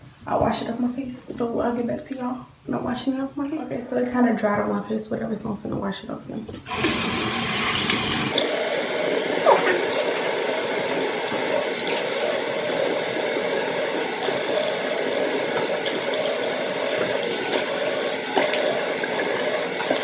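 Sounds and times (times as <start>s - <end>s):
sink tap running: 6.6s - 20.0s.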